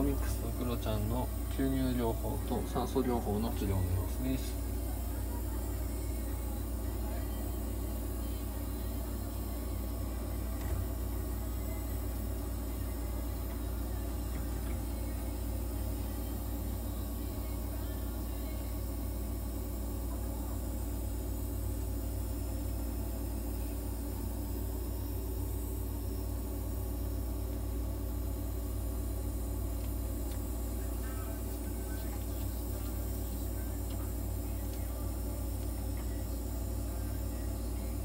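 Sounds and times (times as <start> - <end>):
nebulizer machine hum: 0.0 - 38.0.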